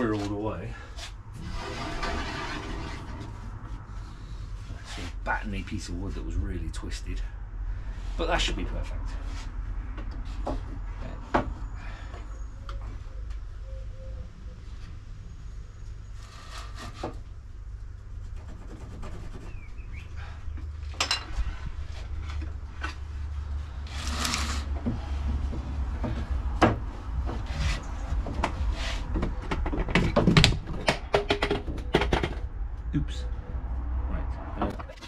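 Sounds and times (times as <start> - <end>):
wood knocking and scraping: 23.9 - 32.5.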